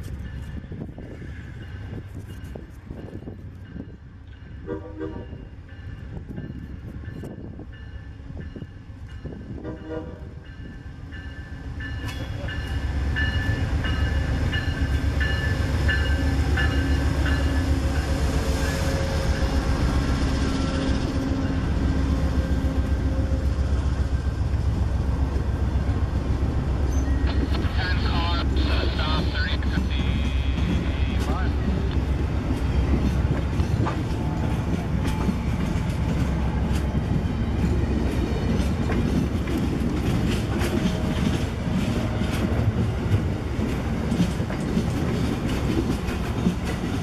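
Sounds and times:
diesel locomotive passing: 0.0 - 47.0
train wheels clicking over rail joints: 31.9 - 47.0.

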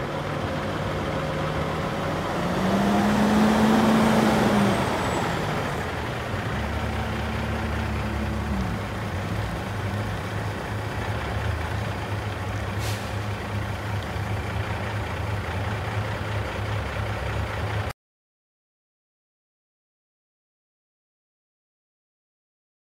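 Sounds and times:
diesel truck idling: 0.0 - 17.9
air brake hiss: 12.8 - 13.3.

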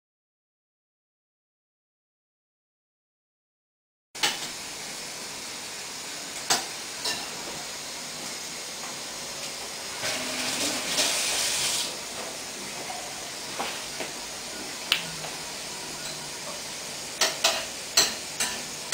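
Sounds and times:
steady air hiss: 7.7 - 16.0.

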